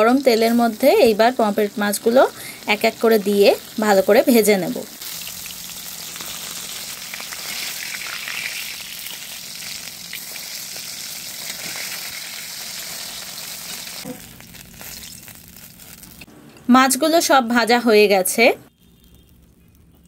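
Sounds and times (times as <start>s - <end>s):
fish sizzling in hot oil: 0.0s - 16.3s.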